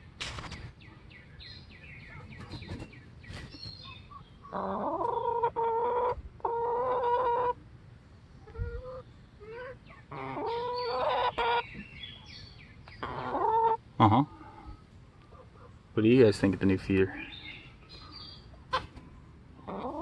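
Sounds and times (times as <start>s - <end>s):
chickens clucking: 2.0s - 7.7s, 8.3s - 15.8s, 17.0s - 20.0s
loud drawn-out chicken calls: 4.0s - 7.6s, 8.4s - 11.8s, 13.0s - 14.7s.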